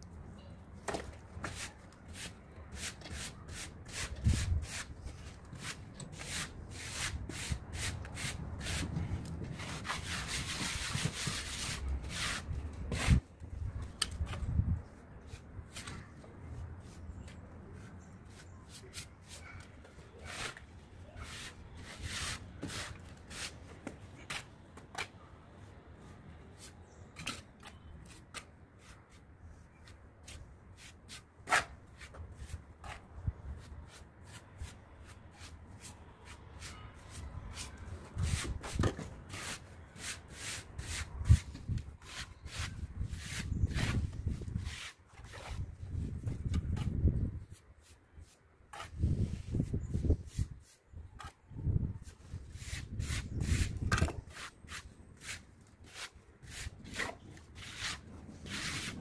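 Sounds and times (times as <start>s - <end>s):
trowel scraping cement: 47.8s - 49.2s, 52.5s - 59.0s.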